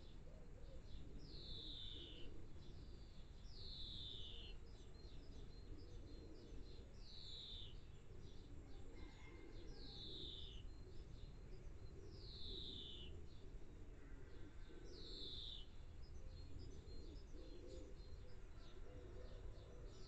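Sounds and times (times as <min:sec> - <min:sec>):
low steady background noise: 0:00.0 - 0:20.0.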